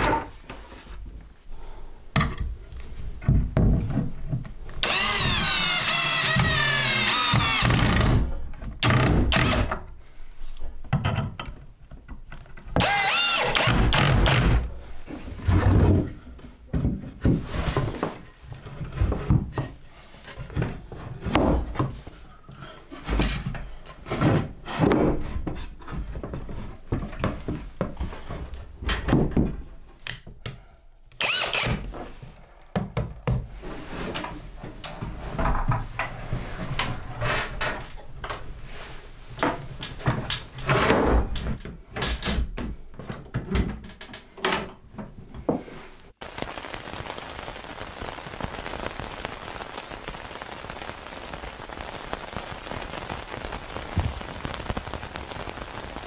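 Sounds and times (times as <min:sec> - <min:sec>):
power drill bursts: 0:04.8 - 0:09.7, 0:12.8 - 0:14.6, 0:31.2 - 0:31.8
wooden boards thunking and knocking: 0:20.4 - 0:22.0.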